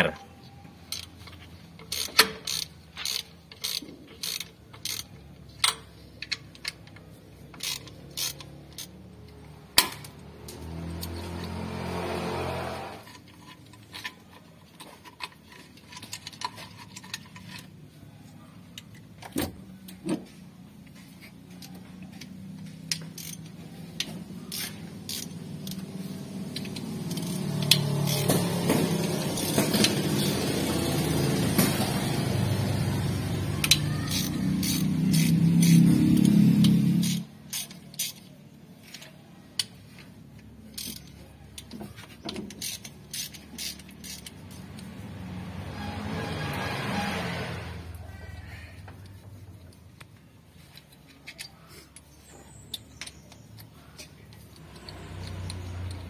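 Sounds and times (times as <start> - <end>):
socket ratchet clicks: 0.8 - 11.2, 22.8 - 31.0, 33.6 - 38.4, 42.3 - 44.9.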